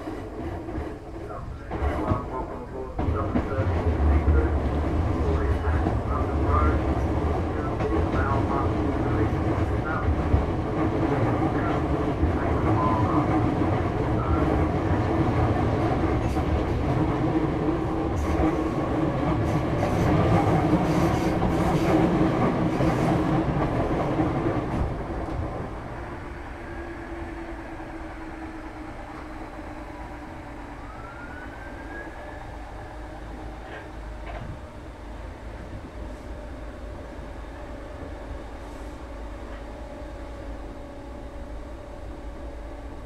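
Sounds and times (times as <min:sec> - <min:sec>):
train interior rumble and hum: 0:00.0 - 0:43.0.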